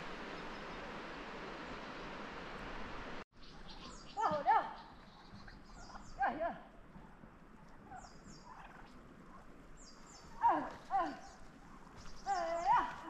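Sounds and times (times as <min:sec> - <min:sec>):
turkeys gobbling: 0:04.2 - 0:10.8.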